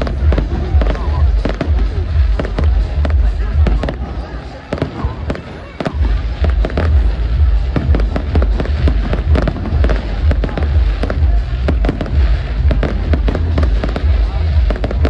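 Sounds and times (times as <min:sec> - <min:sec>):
fireworks bursts and crackling: 0:00.0 - 0:15.0
deep rumble: 0:06.0 - 0:15.0.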